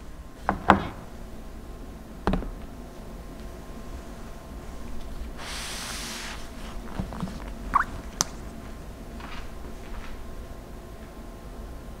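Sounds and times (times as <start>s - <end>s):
brief rubbing hiss: 5.4s - 6.7s.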